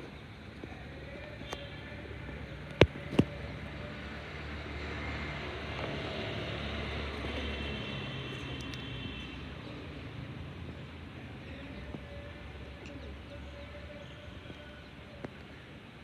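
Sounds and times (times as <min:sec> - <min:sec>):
distant traffic rumble: 0:00.0 - 0:16.0
light clicks: 0:08.4 - 0:08.9.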